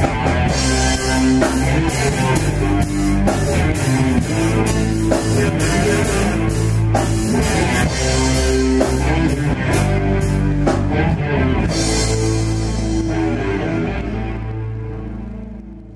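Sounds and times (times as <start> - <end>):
drum and cymbal hits: 0.0 - 11.0
rock band playing: 0.0 - 15.9.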